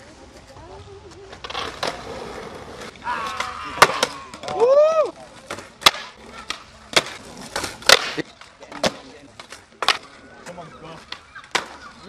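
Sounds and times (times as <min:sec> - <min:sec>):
skateboard popping and landing: 0:00.3 - 0:12.0
person calling out: 0:03.0 - 0:04.4.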